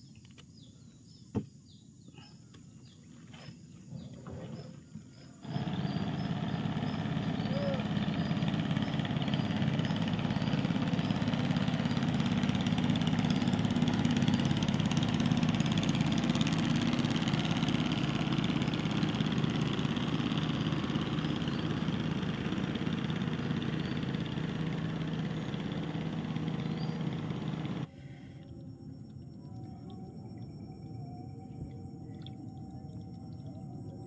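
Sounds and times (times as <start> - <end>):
boat engine running: 1.2 - 34.0.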